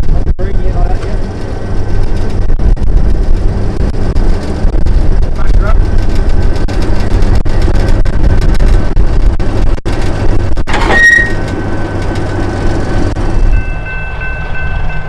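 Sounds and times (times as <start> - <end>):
diesel locomotive engine rumbling: 0.0 - 15.0
high squeal: 10.8 - 11.6.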